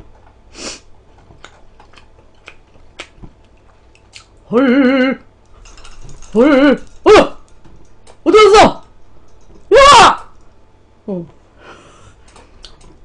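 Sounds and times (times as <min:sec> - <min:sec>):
faint eating clicks: 0:01.2 - 0:04.5.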